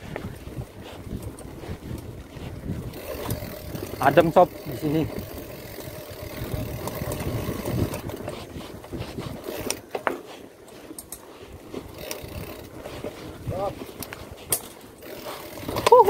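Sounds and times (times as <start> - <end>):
bike clicks and rattles: 0.0 - 16.0
tyres rumbling on dirt: 2.7 - 10.2.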